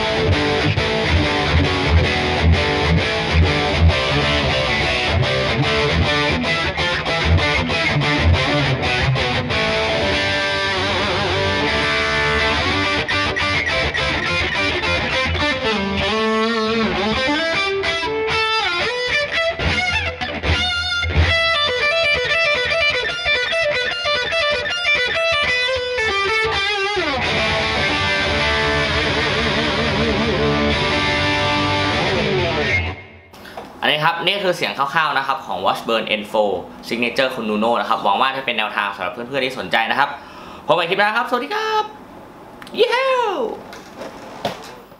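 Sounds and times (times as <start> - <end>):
distorted electric guitar: 0.0 - 33.8.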